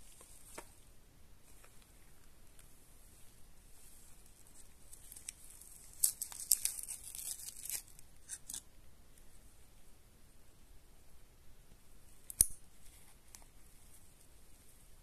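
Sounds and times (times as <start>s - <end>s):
foil pouch tearing and crinkling: 4.9s - 8.6s.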